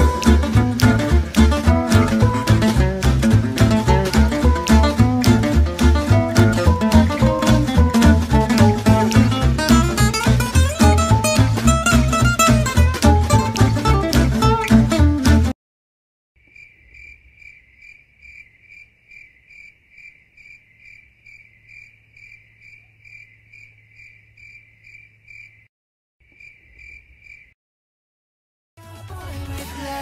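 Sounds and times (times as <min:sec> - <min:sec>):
cricket chirping: 0:16.4 - 0:27.6.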